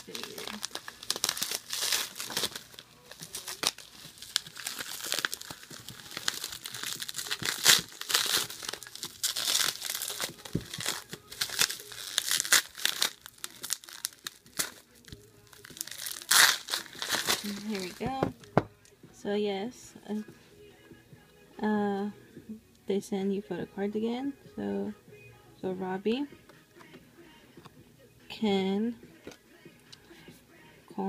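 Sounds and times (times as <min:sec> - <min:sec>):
bubble wrap crinkling: 0:00.0 - 0:18.6.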